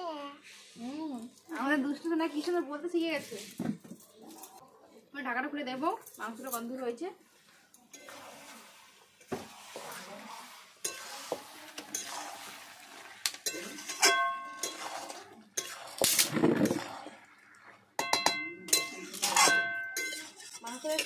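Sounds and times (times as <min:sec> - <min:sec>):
meat frying in oil: 0:07.9 - 0:18.8
metal spatula scraping a pan: 0:07.9 - 0:21.0
spatula clinking against pan: 0:10.8 - 0:11.1, 0:13.4 - 0:15.0, 0:18.0 - 0:21.0.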